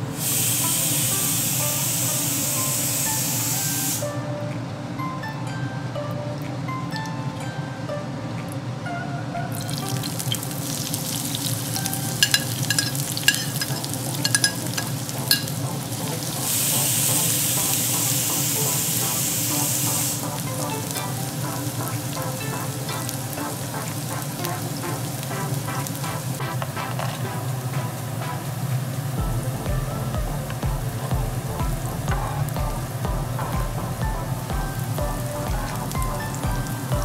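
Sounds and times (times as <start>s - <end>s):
onions frying in hot oil: 0.0s - 4.0s, 9.5s - 37.0s
spatula stirring in a pan: 9.8s - 16.4s.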